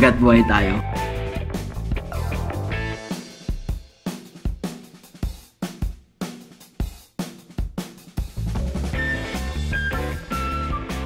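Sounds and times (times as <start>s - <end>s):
steady bass: 0.0s - 3.0s, 8.4s - 11.0s
held melodic lead line: 0.0s - 3.1s, 8.9s - 11.0s.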